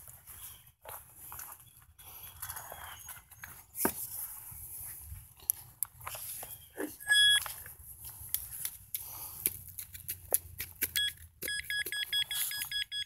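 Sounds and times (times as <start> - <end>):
metal detector beeping: 7.0 - 7.6, 11.0 - 13.0.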